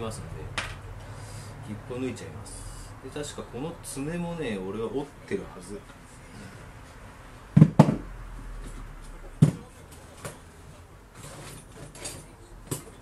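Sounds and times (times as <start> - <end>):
objects knocking on wooden table: 7.6 - 8.0.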